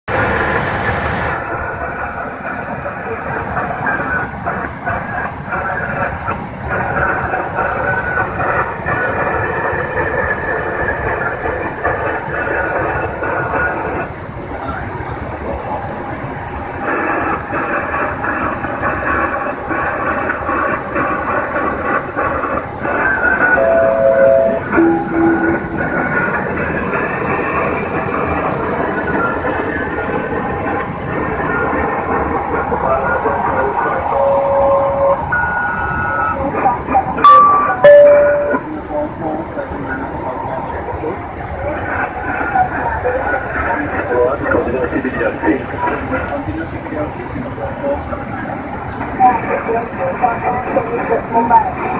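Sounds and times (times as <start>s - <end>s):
short steady tones: 23.4s - 26.6s, 37.2s - 38.8s.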